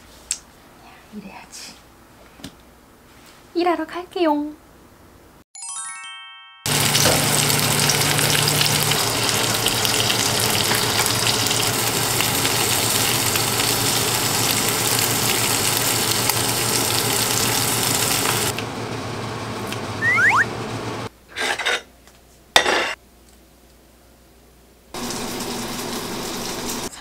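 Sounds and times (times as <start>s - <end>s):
pork sizzling in a pan: 6.7s - 18.5s, 25.0s - 26.9s.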